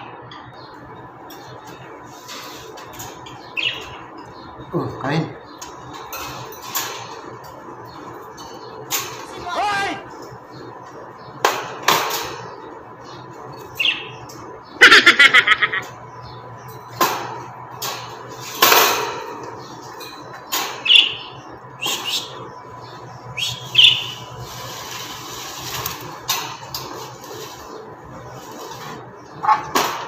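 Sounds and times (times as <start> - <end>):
small birds chirping: 0.3 - 30.0
clicks and rattles in birdcage: 5.6 - 9.4, 11.4 - 12.6, 16.7 - 21.0, 24.7 - 30.0.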